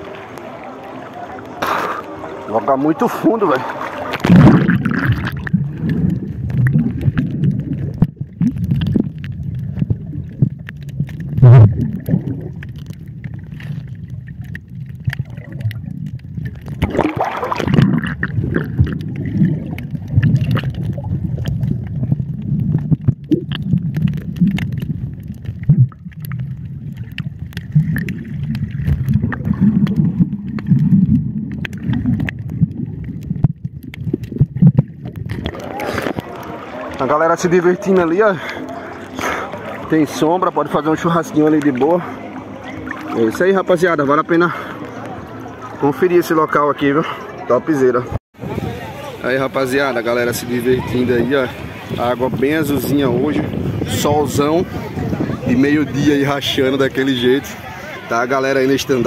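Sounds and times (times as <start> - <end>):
muffled underwater water rumbling: 0.0 - 59.0
underwater clicks: 3.5 - 43.5.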